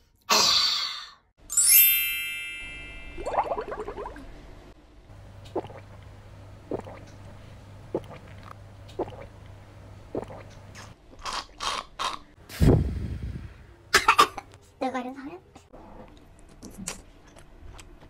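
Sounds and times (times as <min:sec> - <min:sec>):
gulping swallows: 0:06.7 - 0:07.1, 0:10.1 - 0:10.9.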